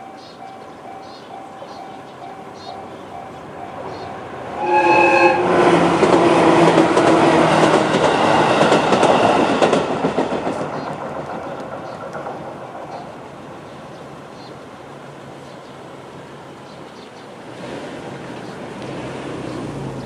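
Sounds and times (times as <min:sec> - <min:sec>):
crossing warning bell: 0:00.0 - 0:05.5
train rail clatter: 0:00.0 - 0:13.4
train horn blast: 0:04.5 - 0:08.5.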